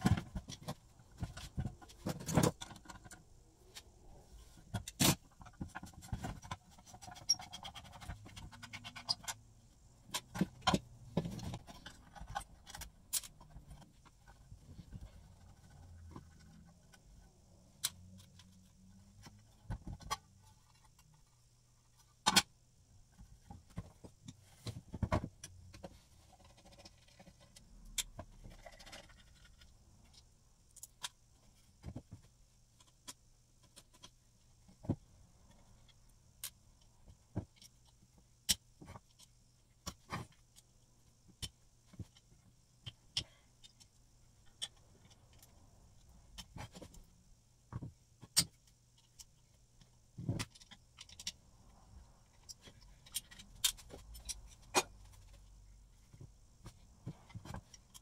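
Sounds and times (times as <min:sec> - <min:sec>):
metal parts clinking and tapping: 0:10.1 - 0:14.4, 0:52.4 - 0:55.5.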